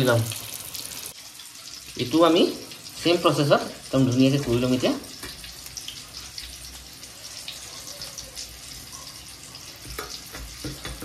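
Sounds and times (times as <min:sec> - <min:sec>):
chicken frying in hot oil: 0:00.0 - 0:11.0.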